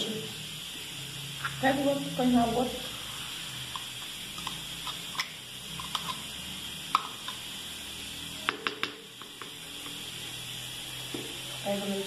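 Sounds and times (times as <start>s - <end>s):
background hiss: 0.0s - 12.0s
metal spoon tapping plastic pot: 8.5s - 9.6s.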